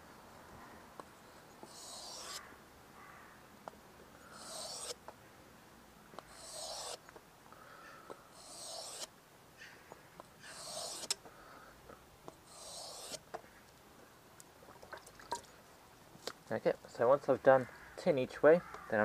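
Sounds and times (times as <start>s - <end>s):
knife scraping on whetstone: 1.6s - 2.4s, 4.3s - 5.0s, 6.2s - 7.0s, 8.3s - 9.1s, 10.4s - 11.2s, 12.4s - 13.2s.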